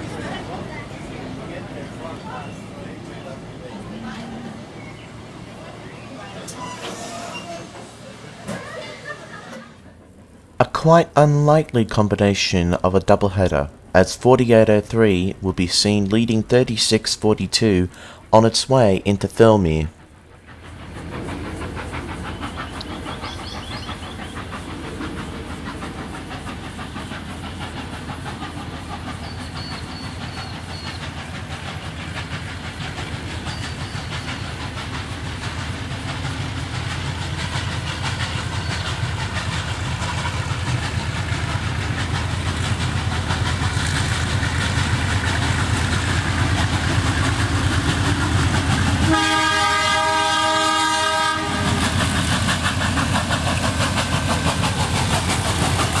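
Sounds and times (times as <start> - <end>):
train engine rumble: 0.0 - 56.0
train horn blast: 49.0 - 52.0.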